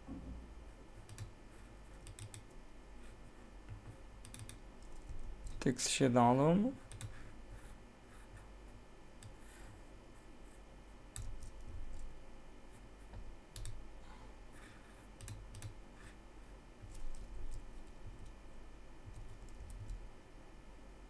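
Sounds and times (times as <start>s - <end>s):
faint low hum: 0.0s - 21.0s
computer mouse and keyboard clicks: 1.0s - 1.3s, 2.0s - 2.6s, 3.7s - 5.6s, 6.8s - 7.2s, 11.1s - 12.1s, 13.5s - 13.8s, 15.2s - 15.8s, 16.8s - 18.4s, 19.1s - 20.0s.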